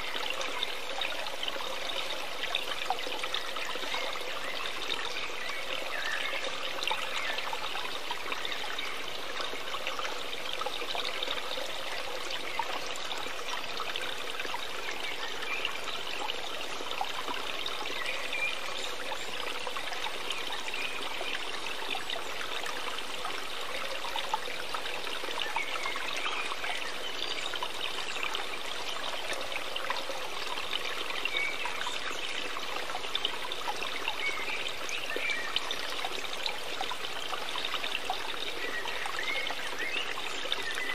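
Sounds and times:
stream trickling: 0.0 - 40.9.

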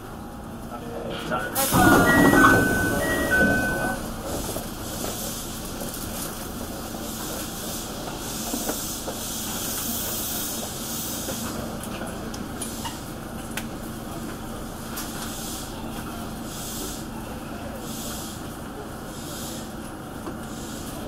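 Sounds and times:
train equipment hiss: 1.6 - 4.0, 6.8 - 11.8, 15.1 - 15.8, 16.4 - 21.0.

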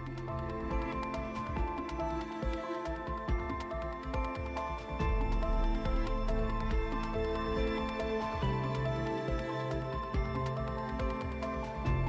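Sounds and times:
soft instrumental music: 0.0 - 12.0.

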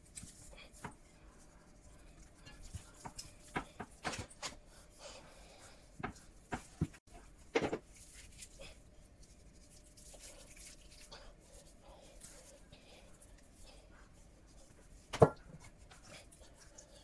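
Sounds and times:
hands slapping and rubbing chicken: 5.9 - 12.7.

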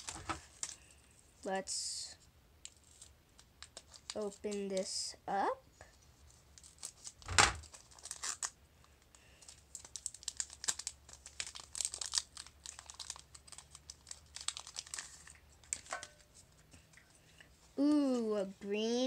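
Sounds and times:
foil wrapper crinkling and tearing: 0.0 - 1.0, 2.6 - 4.5, 6.4 - 16.2.

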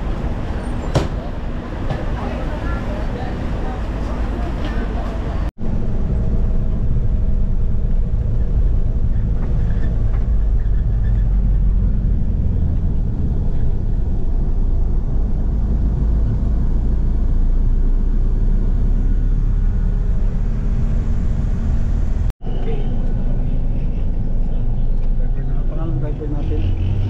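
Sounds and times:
van engine and road noise: 0.0 - 27.0.

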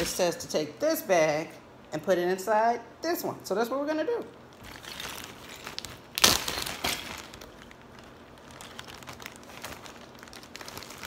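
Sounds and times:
plastic bag crinkling: 4.4 - 11.0
sharp crackle of bag: 4.5 - 11.0.

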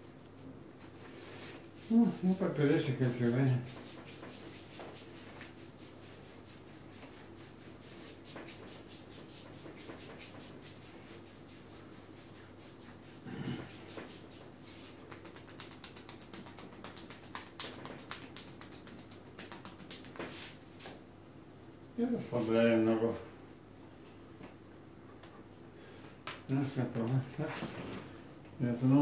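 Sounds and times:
hands rubbing skin: 2.8 - 21.0.

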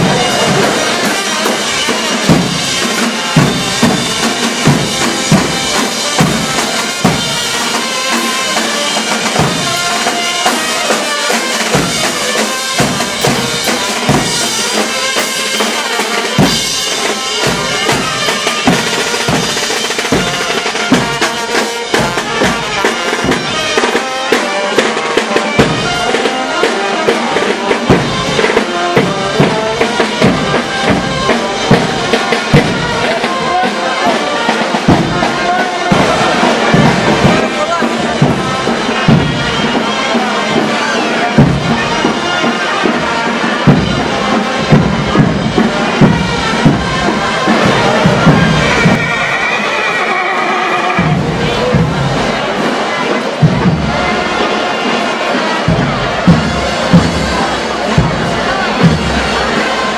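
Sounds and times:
trumpet and wind instruments: 0.0 - 59.9
bass drums beaten: 34.9 - 39.6, 43.6 - 49.3, 51.0 - 52.6, 53.4 - 54.3, 55.6 - 59.9.

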